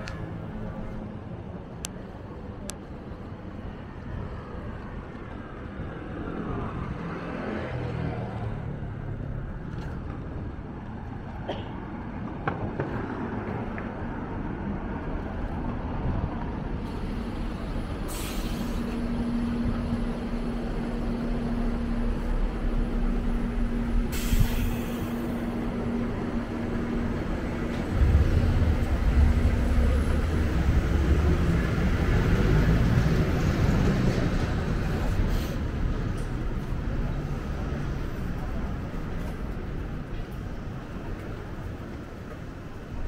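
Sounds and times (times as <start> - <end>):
electric train rumbling: 0.0 - 43.0
brief hisses: 18.1 - 19.0, 24.1 - 25.2
steady hum: 18.7 - 32.2.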